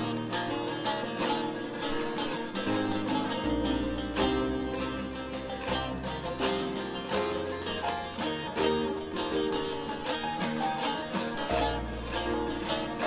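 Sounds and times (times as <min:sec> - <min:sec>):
plucked lute melody: 0:00.0 - 0:13.0
low keyboard bass notes: 0:02.7 - 0:10.0.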